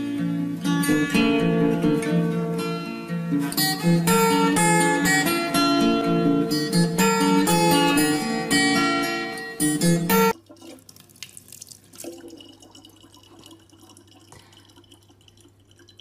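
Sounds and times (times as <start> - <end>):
plucked acoustic guitar music: 0.0 - 10.8
faint running water tap: 10.3 - 16.0.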